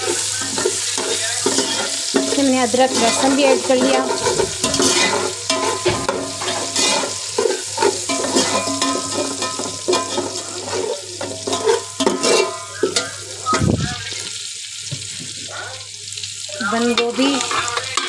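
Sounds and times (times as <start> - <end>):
spatula scraping pan: 0.0 - 13.7
spices sizzling in hot oil: 0.0 - 18.0.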